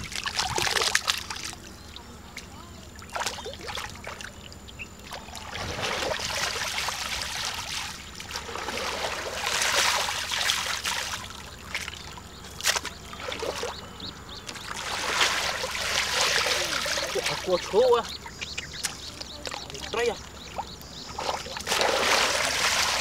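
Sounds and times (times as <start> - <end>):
muddy water splashing and trickling: 0.0 - 23.0
water draining through basket: 14.6 - 18.2.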